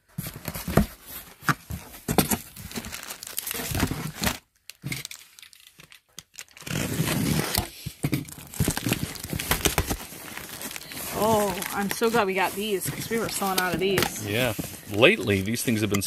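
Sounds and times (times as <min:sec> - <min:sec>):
cardboard flaps rustling: 0:06.8 - 0:16.0.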